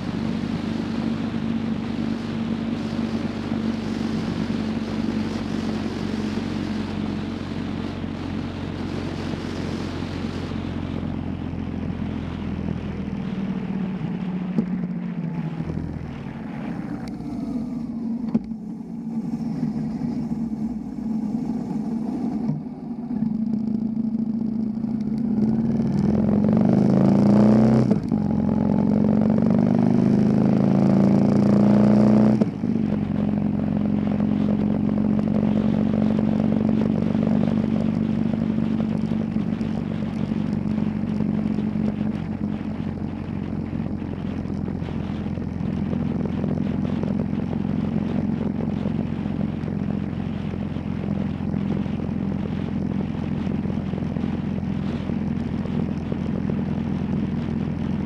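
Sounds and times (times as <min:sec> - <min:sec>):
motorcycle engine running: 0:00.0 - 0:58.0
wind rushing: 0:15.1 - 0:22.8.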